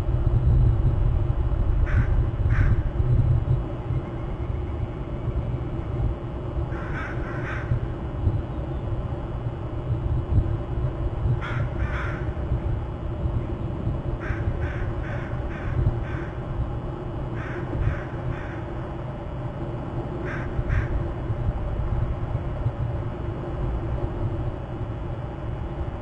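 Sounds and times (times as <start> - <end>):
steady low rumble: 0.0 - 26.0
crow cawing: 1.9 - 2.8, 6.7 - 7.8, 11.4 - 12.4, 14.2 - 16.4, 17.4 - 18.7, 20.2 - 21.0.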